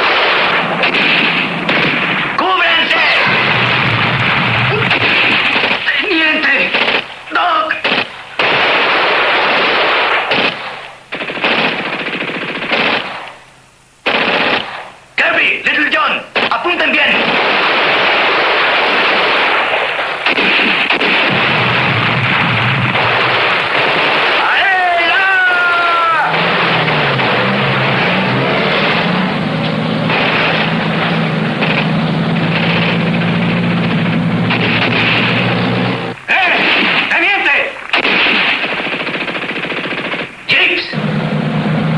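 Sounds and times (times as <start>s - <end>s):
automatic gunfire bursts: 0.0s - 13.4s, 14.0s - 15.0s, 16.4s - 29.2s, 30.0s - 35.6s, 36.4s - 41.1s
jeep engines droning: 25.3s - 36.2s, 41.0s - 41.9s.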